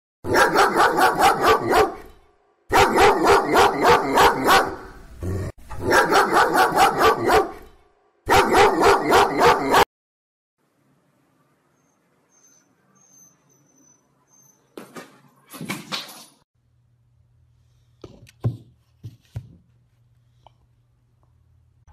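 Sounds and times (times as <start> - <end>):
dog barking rapidly: 0.2 - 2.1, 2.7 - 5.0, 5.8 - 7.7, 8.3 - 9.9.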